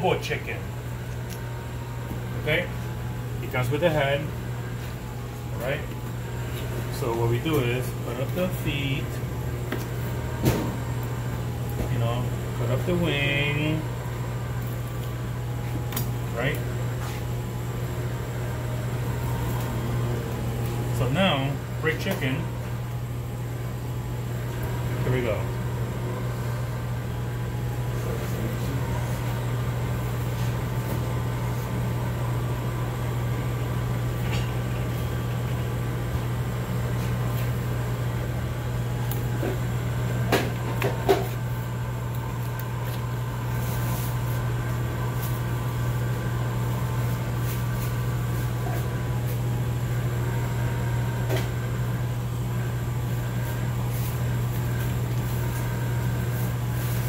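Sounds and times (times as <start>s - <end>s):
kitchen machine hum: 0.0s - 57.0s.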